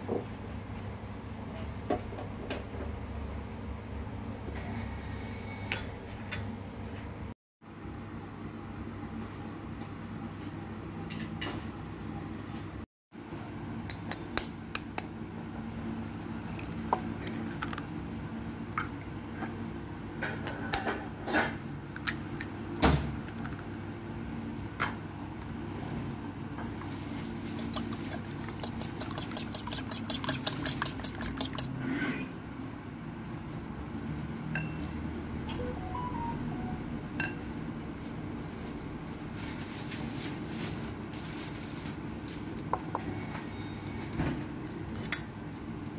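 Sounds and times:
eggs cracking against bowl rim: 27.6s - 31.7s
fork whisking in ceramic bowl: 27.6s - 31.8s.

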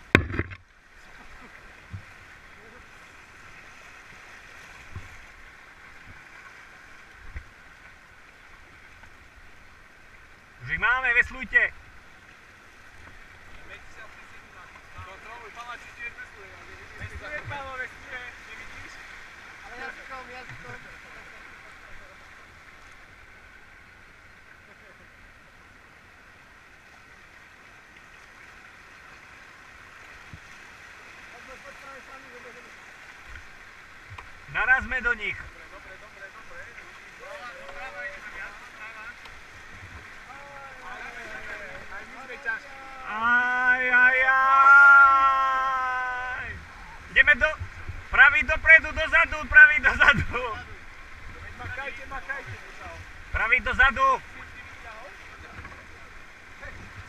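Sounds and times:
dull thumps on raft: 0.0s - 0.7s
stream rushing over stones: 0.0s - 57.0s.

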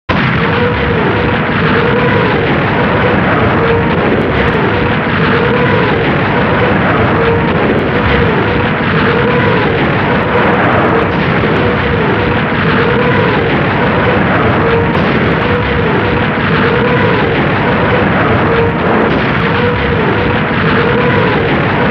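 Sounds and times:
rocket motors rushing and howling: 0.1s - 21.9s.

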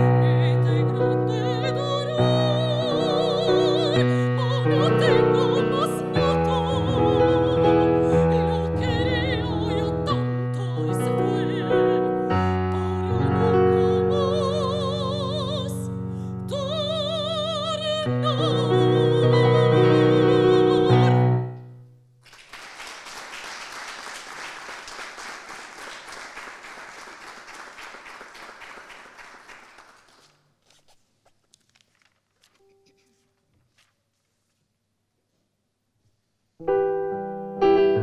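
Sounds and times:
woman singing operatically: 0.0s - 21.4s
audience clapping: 22.2s - 30.4s
sustained piano chords: 36.6s - 38.0s.

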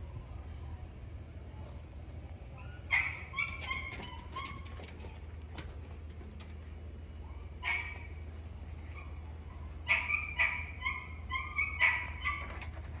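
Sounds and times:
dog whining: 9.9s - 12.7s.

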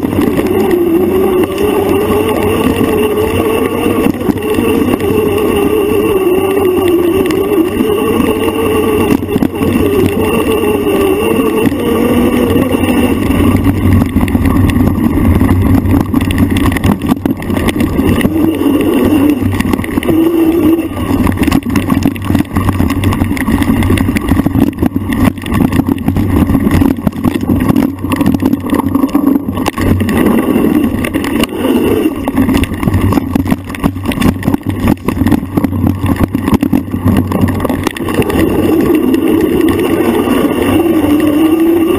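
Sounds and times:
motorbike engine revving: 0.0s - 14.3s.

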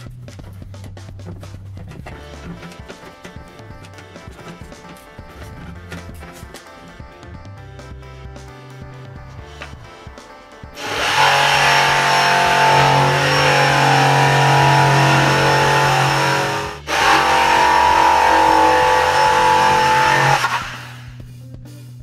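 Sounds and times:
electric jigsaw cutting board: 2.0s - 6.0s, 10.8s - 21.2s.

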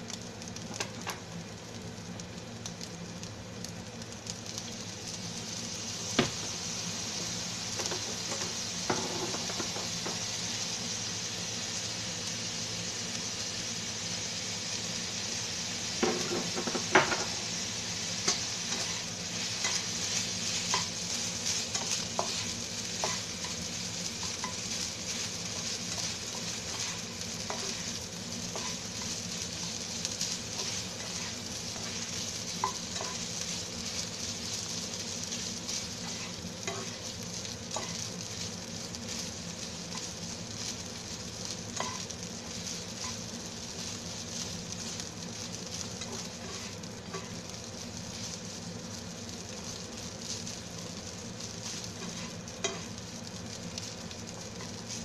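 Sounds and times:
food sizzling in a frying pan: 0.0s - 55.0s
spatula scraping a pan: 46.0s - 47.3s, 51.7s - 52.9s.

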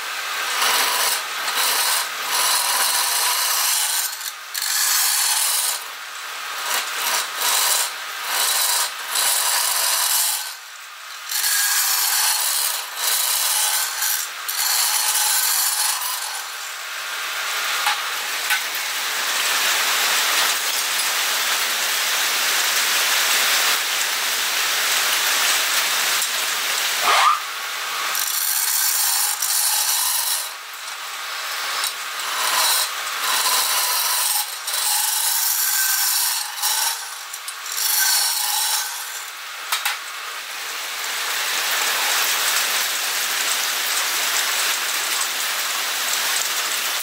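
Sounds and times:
lathe tool cutting wood: 0.3s - 5.8s, 6.6s - 10.6s, 11.3s - 16.6s, 27.8s - 30.6s, 31.4s - 39.3s.

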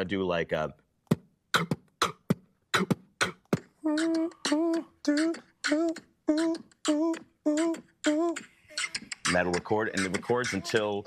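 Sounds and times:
mouth clicks: 1.1s - 10.9s
hummed vocal note: 2.8s - 11.0s.

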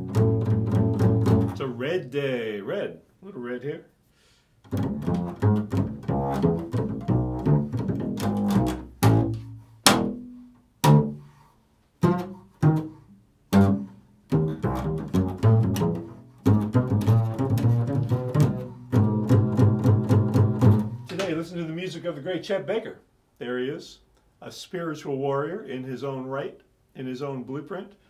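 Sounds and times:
double bass plucked: 0.0s - 1.8s, 4.6s - 11.4s, 12.0s - 21.2s.

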